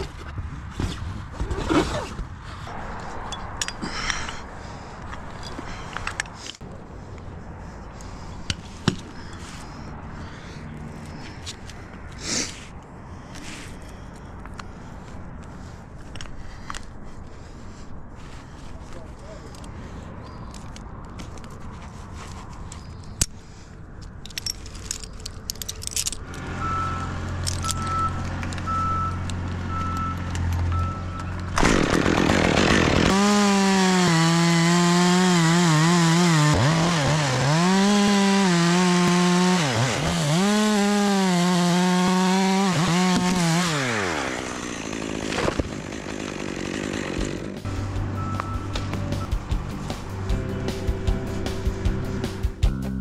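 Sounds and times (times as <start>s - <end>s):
clicks and rattles: 24.0s - 26.4s
chainsaw cutting wood: 31.5s - 49.6s.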